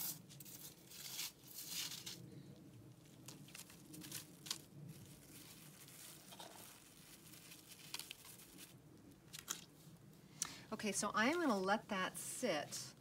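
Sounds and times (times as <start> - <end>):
plastic bag crinkling: 3.0 - 9.8.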